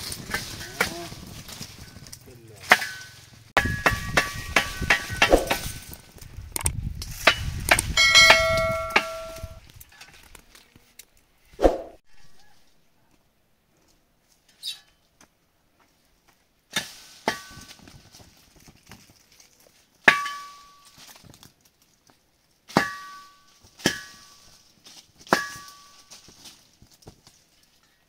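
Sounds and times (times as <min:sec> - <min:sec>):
rustle of shaken leaves: 0:00.0 - 0:08.7, 0:15.9 - 0:28.0
pole knocking tree branches: 0:02.6 - 0:05.9, 0:06.7 - 0:09.6.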